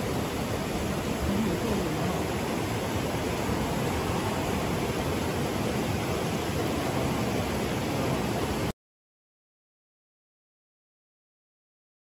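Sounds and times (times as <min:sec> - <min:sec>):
water rushing over rocks: 0:00.0 - 0:08.7.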